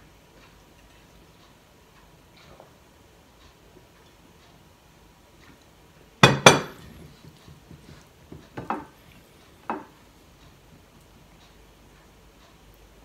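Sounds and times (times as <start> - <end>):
glass pitcher clinking on table: 6.2 - 6.9
dishware knocks: 6.2 - 7.0, 8.6 - 8.9.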